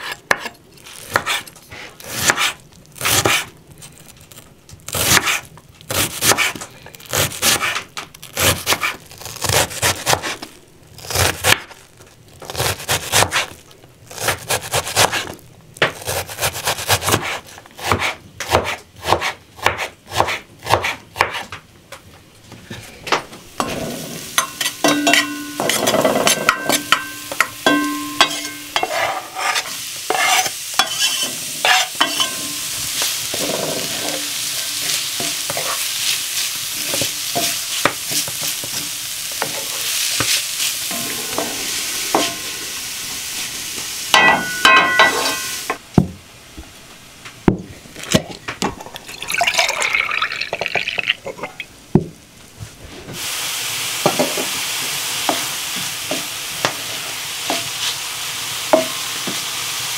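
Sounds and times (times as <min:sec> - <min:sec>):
knife chopping on wooden board: 0:02.1 - 0:03.4, 0:05.0 - 0:06.6, 0:12.6 - 0:13.5, 0:15.8 - 0:21.5
garlic sizzling in a pan: 0:23.5 - 0:45.8, 0:53.2 - 0:59.9.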